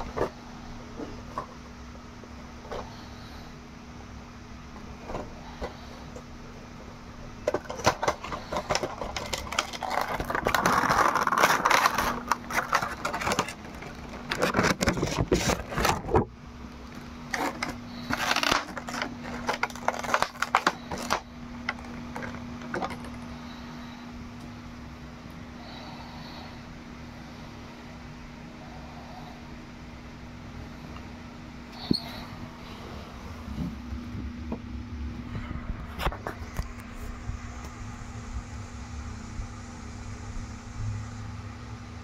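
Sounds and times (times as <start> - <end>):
low hum: 0.0 - 42.0
plastic and cardboard crinkling: 7.4 - 23.3.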